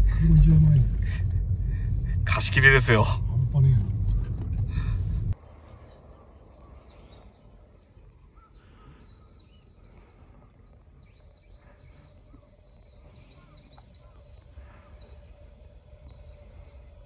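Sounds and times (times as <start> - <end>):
low steady rumble: 0.0 - 6.9
faint small-bird chirps: 6.4 - 17.0.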